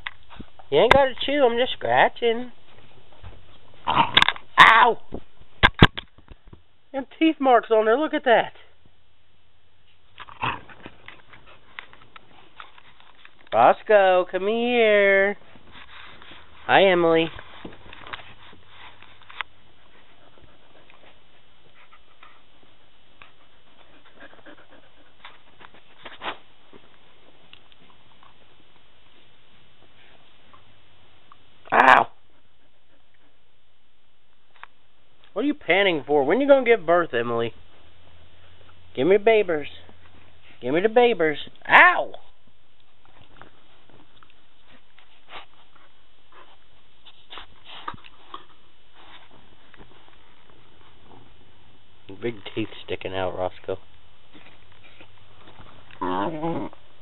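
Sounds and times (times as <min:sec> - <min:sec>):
soft rustles: 0:00.0 - 0:03.9, 0:09.7 - 0:31.3, 0:39.7 - 0:40.7, 0:42.8 - 0:57.0
low background noise: 0:00.0 - 0:57.0.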